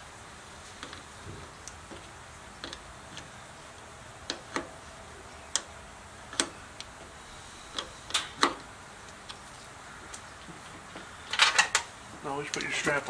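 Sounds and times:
sharp metallic clicks and taps: 0:12.5 - 0:12.9.

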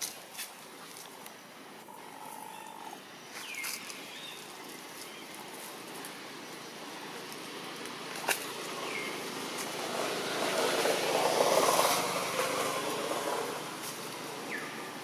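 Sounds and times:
vehicle passing by: 0:08.4 - 0:15.0.

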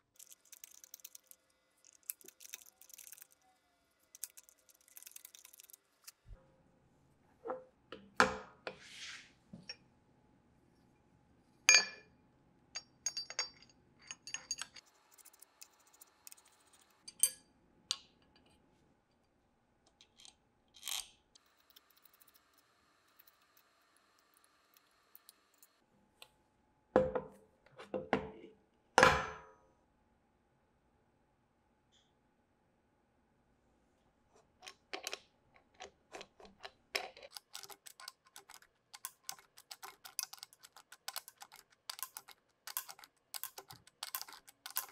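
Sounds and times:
metal parts clinking on steel table: 0:00.2 - 0:03.4, 0:04.1 - 0:05.8, 0:12.8 - 0:17.5, 0:34.6 - 0:44.9.

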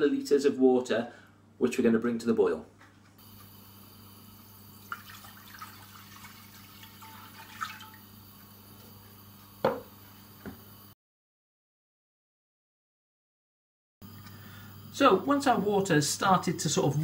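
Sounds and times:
water pouring into a pot: 0:04.7 - 0:08.6.

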